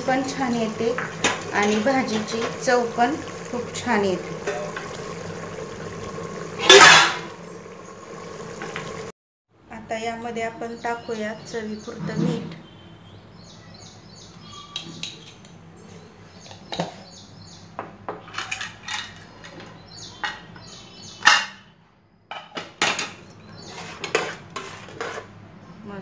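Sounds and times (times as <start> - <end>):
faint birds chirping: 9.8 - 17.8, 19.0 - 22.3
metal spoon scraping a pot: 23.6 - 25.4.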